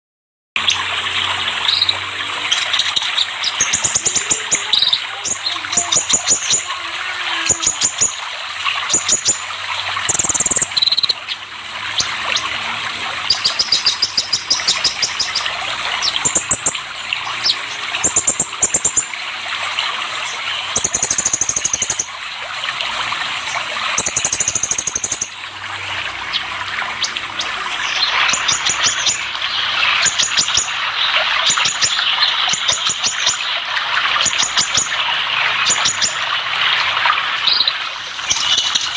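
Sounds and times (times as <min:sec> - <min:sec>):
bird chirping rapidly: 0:00.6 - 0:12.5, 0:13.1 - 0:19.2, 0:19.8 - 0:22.2, 0:23.5 - 0:25.4, 0:26.3 - 0:33.6, 0:34.2 - 0:35.0, 0:35.6 - 0:36.2, 0:37.4 - 0:38.9
running water: 0:00.6 - 0:38.9.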